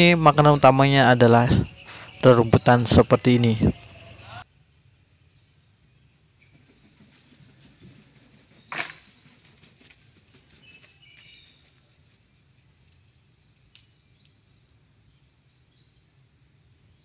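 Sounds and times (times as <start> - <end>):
small birds chirping: 0.0 - 4.4
light ticks: 13.7 - 14.8.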